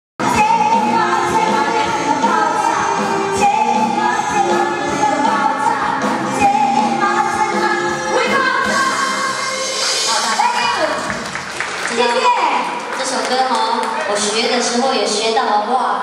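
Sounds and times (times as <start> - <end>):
woman singing pop song: 0.2 - 11.1
live band playing: 0.2 - 12.8.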